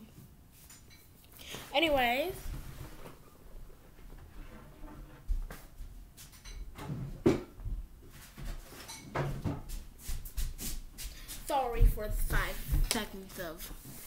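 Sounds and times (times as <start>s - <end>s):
household knocks and clunks: 6.5s - 9.8s.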